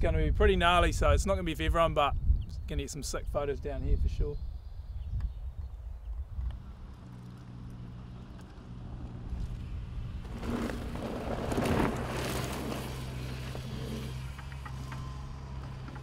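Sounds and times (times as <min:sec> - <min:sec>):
low engine hum: 0:04.9 - 0:16.0
bike tyres rushing on dirt: 0:06.2 - 0:16.0.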